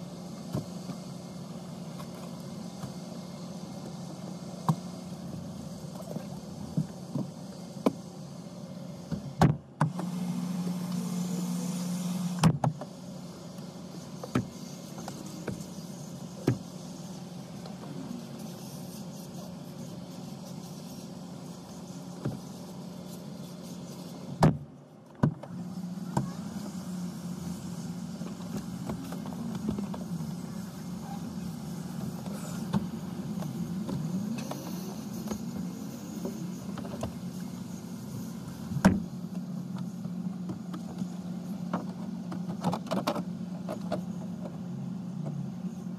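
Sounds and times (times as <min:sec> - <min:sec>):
low car hum: 0:00.0 - 0:45.9
car seats clunking and clicking: 0:09.0 - 0:10.2, 0:13.6 - 0:18.0, 0:24.3 - 0:26.8, 0:27.6 - 0:45.5.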